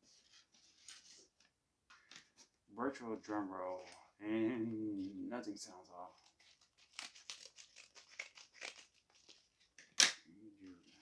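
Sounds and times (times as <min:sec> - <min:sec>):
paper ripping: 0:06.1 - 0:09.7
envelope crinkling and rustling: 0:06.1 - 0:09.8
scissors snipping paper: 0:06.2 - 0:09.6.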